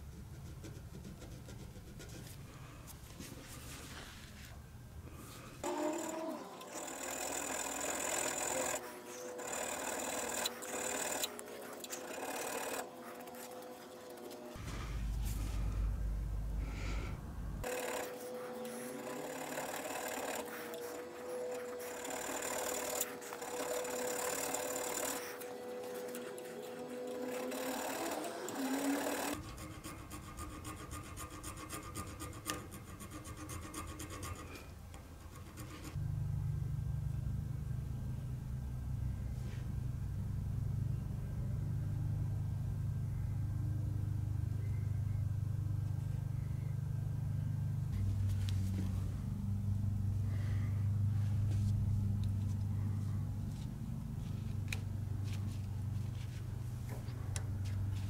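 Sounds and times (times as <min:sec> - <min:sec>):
steady low hum: 0:00.0 - 0:27.4, 0:29.3 - 0:58.0
hand file rasping on metal: 0:05.6 - 0:14.5, 0:17.6 - 0:36.0.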